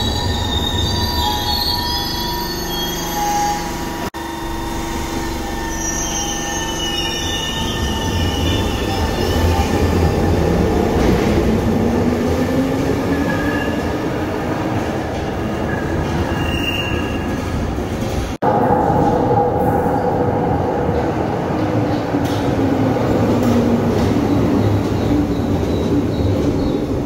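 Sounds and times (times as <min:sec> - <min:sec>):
high-pitched wheel squeal: 0:00.0 - 0:09.7
rising train whine: 0:00.0 - 0:27.0
train wheels rumbling on track: 0:07.5 - 0:27.0.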